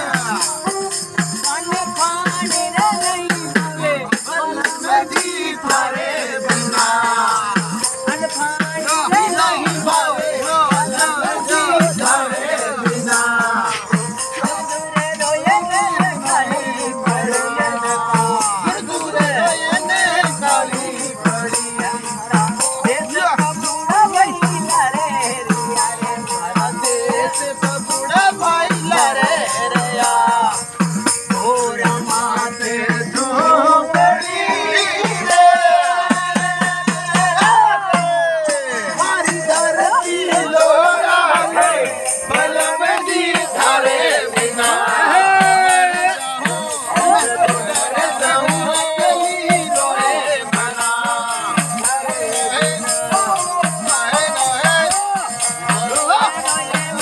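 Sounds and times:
jingling percussion: 0.0 - 57.0
man singing: 0.0 - 57.0.

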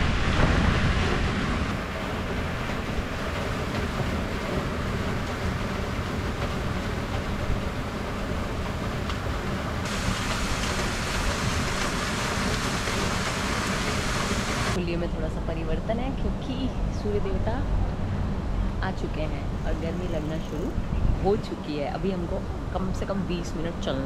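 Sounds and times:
fountain water splashing: 9.8 - 14.8.

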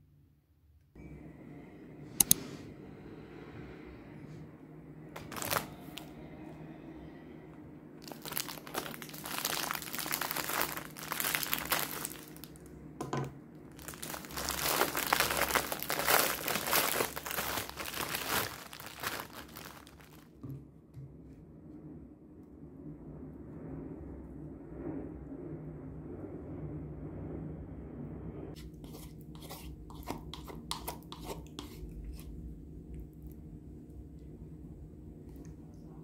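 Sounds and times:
plastic bread bag crinkling: 5.2 - 6.1, 8.0 - 12.7, 13.7 - 20.4.

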